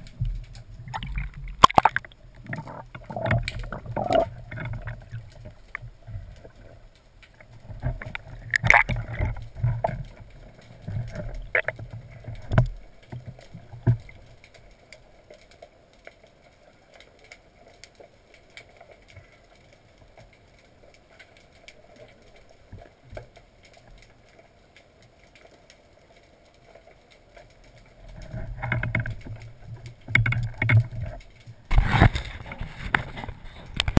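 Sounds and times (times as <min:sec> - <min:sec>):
rushing water: 0:00.0 - 0:34.0.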